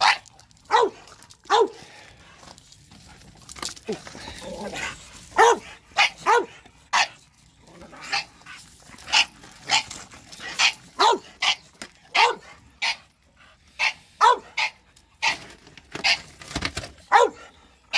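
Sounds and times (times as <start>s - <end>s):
dog barking: 0.0s - 1.8s, 5.4s - 7.1s, 10.6s - 13.0s, 13.8s - 15.4s, 17.1s - 17.5s.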